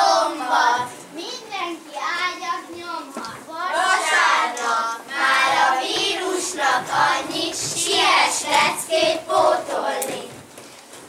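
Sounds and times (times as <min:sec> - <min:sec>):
children singing: 0:00.0 - 0:01.0, 0:03.6 - 0:10.4.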